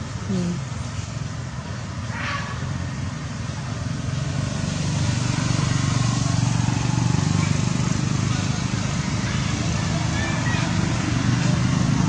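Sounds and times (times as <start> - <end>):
vehicle engine running: 2.6 - 12.0.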